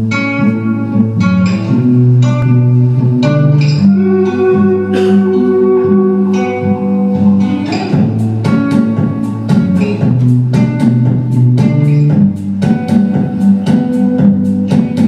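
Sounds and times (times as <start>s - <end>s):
held low notes: 0.0s - 15.0s
plucked guitar: 0.0s - 15.0s.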